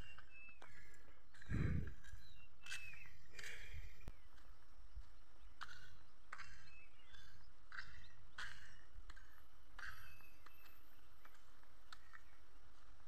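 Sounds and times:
footsteps on dirt path: 0.0 - 13.0
low rumble: 1.5 - 2.1.

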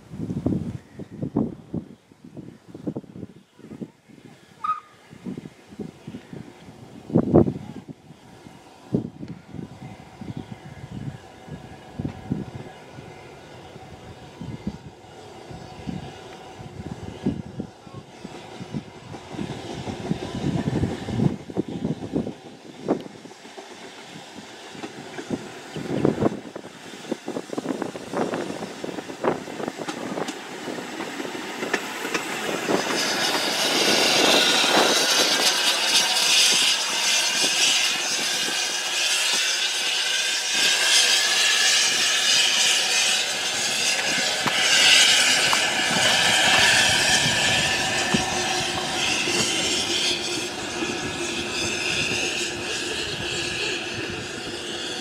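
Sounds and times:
steam hissing: 9.8 - 55.0
wheels clicking over rail joints: 29.2 - 39.6.

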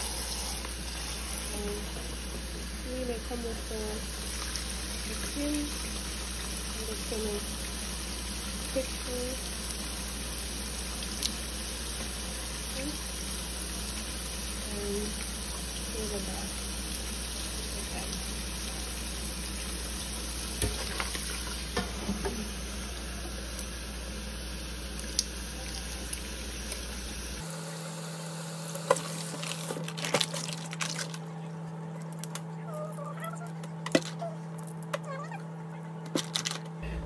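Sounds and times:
tap water running into steel sink: 4.1 - 23.7
plastic bag rustling: 29.1 - 31.3
low hum: 30.0 - 37.0.

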